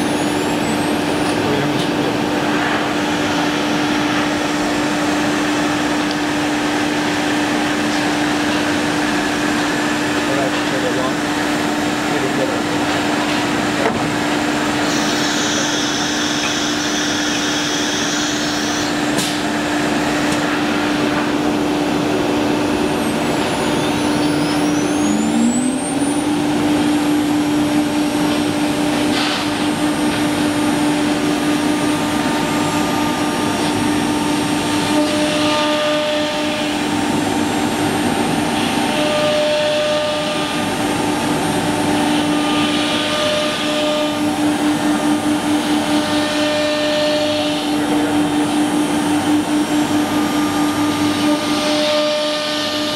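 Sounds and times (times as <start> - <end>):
machine noise: 0.0 - 52.9
router spindle whine: 8.8 - 19.1, 20.0 - 52.9
rising whine: 14.6 - 34.9, 47.5 - 51.7.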